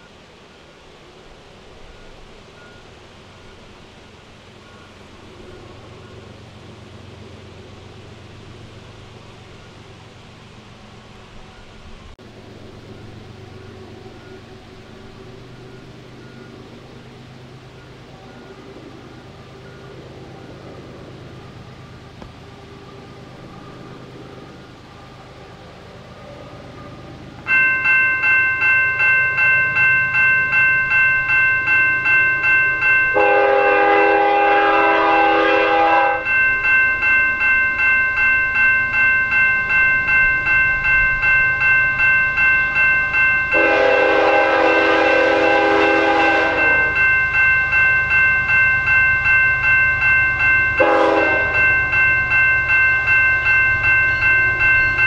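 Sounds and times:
level-crossing bell ringing: 22.8s - 55.0s
locomotive air horn blasts: 33.1s - 36.3s, 43.6s - 47.0s, 50.8s - 51.6s.

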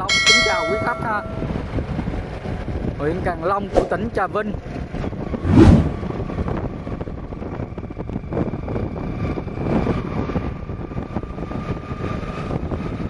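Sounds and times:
motorbike road noise: 0.0s - 13.0s
wind buffeting microphone: 0.1s - 13.0s.

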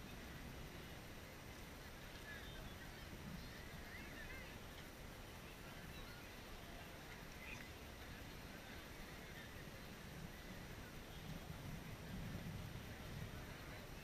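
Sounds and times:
steady beach hiss: 0.0s - 14.0s
distant high wavering calls: 2.3s - 4.7s, 5.3s - 11.5s.

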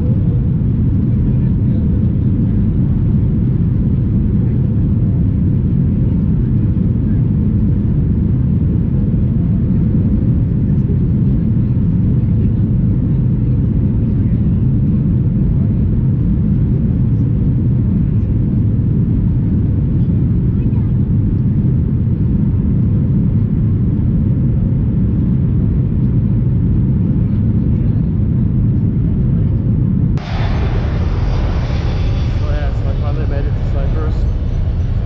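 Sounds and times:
jet engines rumbling in cabin: 0.0s - 35.0s
rushing air: 30.2s - 35.0s.

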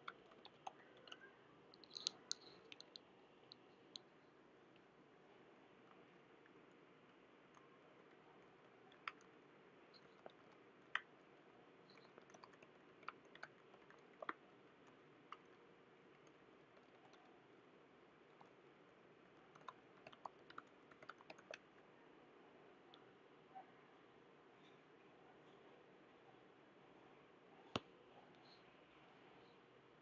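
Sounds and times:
computer keyboard clicks: 0.0s - 3.0s, 11.9s - 15.6s, 19.5s - 21.6s
faint steady hiss: 0.0s - 30.0s.

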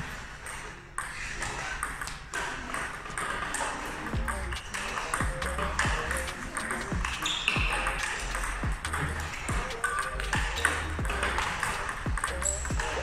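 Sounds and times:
balls bouncing on table: 0.0s - 13.0s
paddle striking table tennis balls: 0.5s - 13.0s
background music with bass beat: 4.2s - 13.0s.

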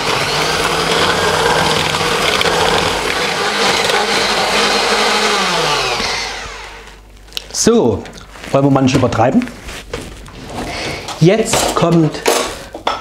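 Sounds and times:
electric hand mixer running: 0.0s - 7.0s.

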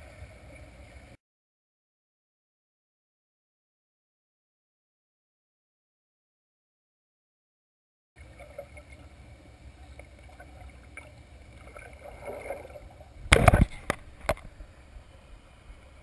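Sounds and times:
muffled underwater water wash: 0.0s - 1.2s, 8.2s - 16.0s
splashing: 10.2s - 14.5s.

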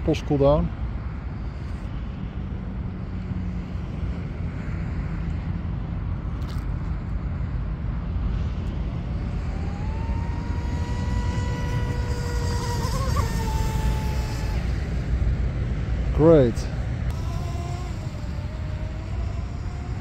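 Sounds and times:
model boat motor whining: 8.8s - 15.3s, 17.1s - 20.0s.

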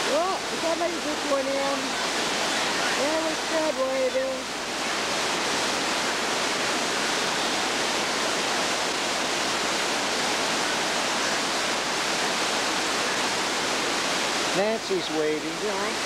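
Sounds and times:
waterfall rushing over rocks: 0.0s - 16.0s.

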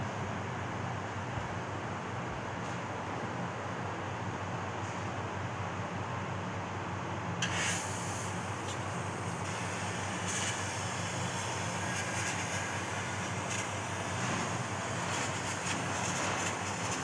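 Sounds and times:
laser cutter gas hiss: 7.4s - 17.0s
low machine hum: 8.2s - 17.0s.

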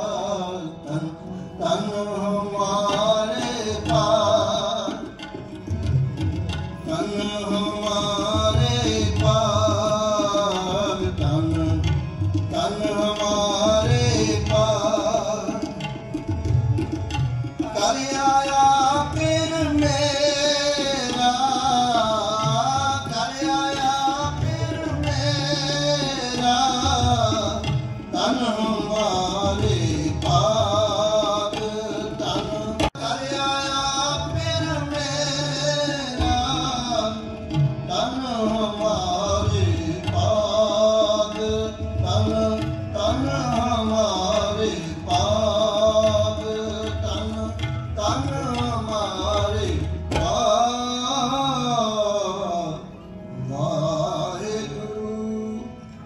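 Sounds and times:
harmonium: 0.0s - 56.0s
tabla rhythm: 0.0s - 56.0s.

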